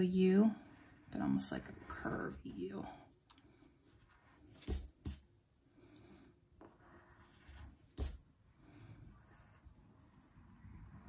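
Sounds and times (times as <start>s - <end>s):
crayon scratching on paper: 3.8s - 5.2s, 6.6s - 8.2s.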